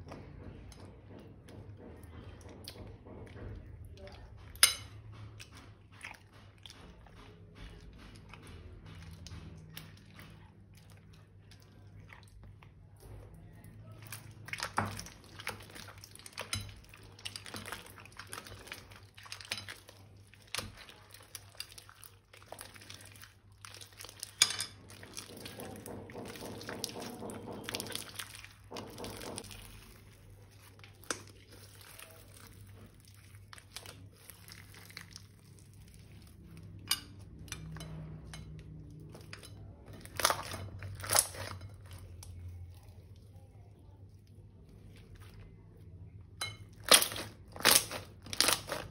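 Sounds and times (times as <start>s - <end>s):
slime and plastic bags handled: 12.9s - 36.9s.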